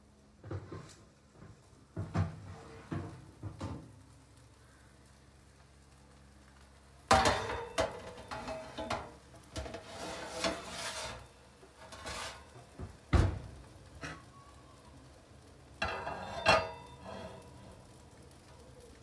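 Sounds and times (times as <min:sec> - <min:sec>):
kitchenware scraping on metal tray: 0:07.1 - 0:12.6, 0:15.8 - 0:17.6.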